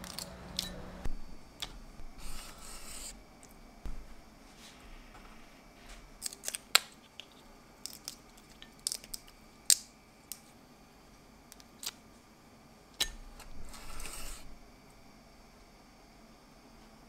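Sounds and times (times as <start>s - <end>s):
knife scraping on wooden board: 13.6s - 14.5s.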